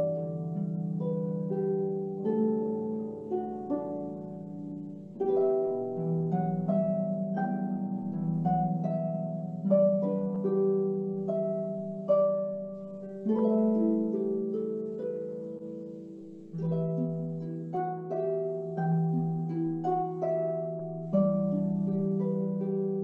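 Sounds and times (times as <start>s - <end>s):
harp playing: 0.0s - 23.0s.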